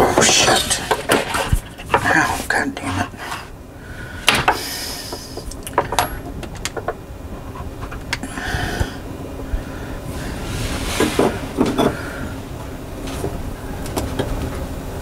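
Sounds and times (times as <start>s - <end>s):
handling clicks and knocks: 5.4s - 7.0s.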